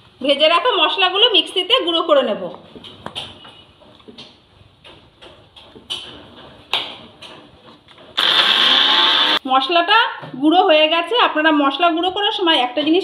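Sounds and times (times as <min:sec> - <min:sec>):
mixer grinder grinding spices: 0:08.2 - 0:09.4.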